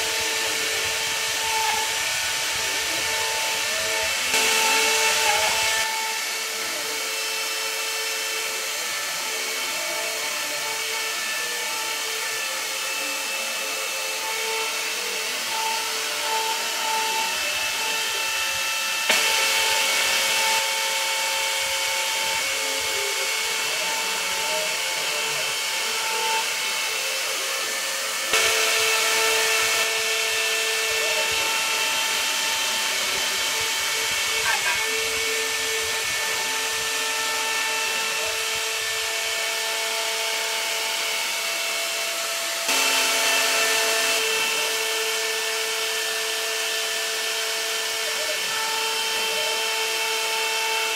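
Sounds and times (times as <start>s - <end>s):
end mill cutting wood: 0.0s - 50.9s
router spindle whine: 0.0s - 50.9s.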